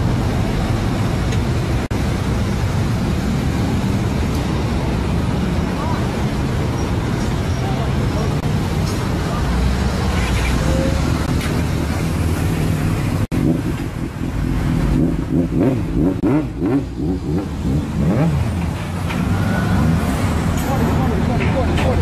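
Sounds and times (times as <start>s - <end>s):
road traffic: 0.0s - 22.0s
motorcycle engine revving: 11.1s - 20.4s.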